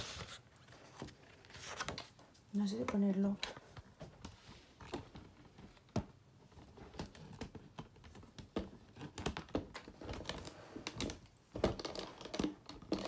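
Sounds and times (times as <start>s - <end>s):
books and paper handled: 0.0s - 13.0s.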